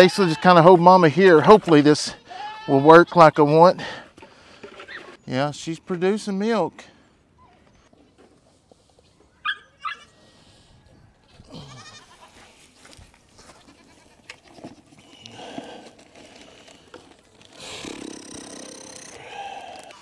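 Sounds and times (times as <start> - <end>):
goat bleating: 2.0 - 3.2, 11.5 - 12.4, 13.4 - 14.8.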